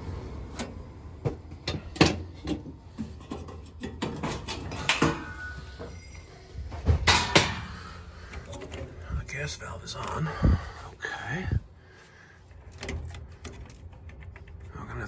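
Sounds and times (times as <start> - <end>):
metal panels clicking and scraping: 1.6 - 5.9, 6.8 - 9.1, 12.5 - 15.0.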